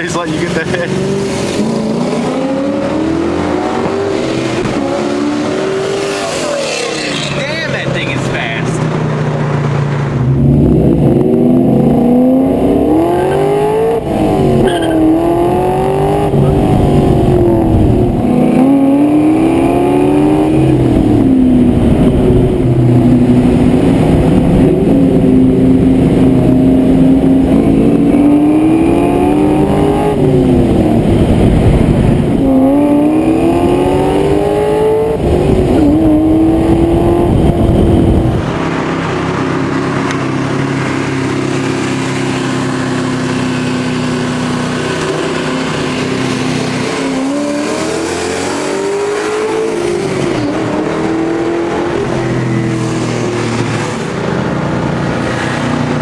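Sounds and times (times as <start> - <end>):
car engine accelerating hard: 0.0 - 56.0
low engine hum: 8.7 - 48.3.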